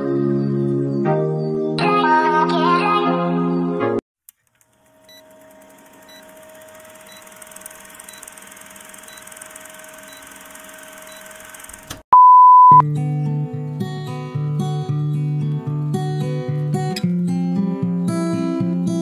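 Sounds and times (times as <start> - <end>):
test-tone beep: 12.2 - 12.8.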